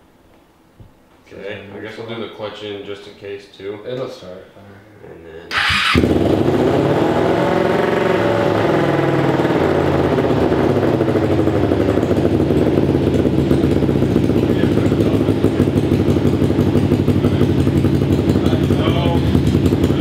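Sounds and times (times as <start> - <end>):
motorcycle engine revving and idling: 5.5 - 20.0.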